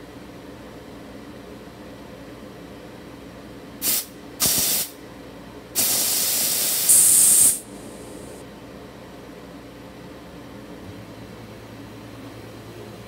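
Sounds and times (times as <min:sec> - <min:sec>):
steam gun hissing bursts: 0:03.8 - 0:04.9, 0:05.8 - 0:08.3.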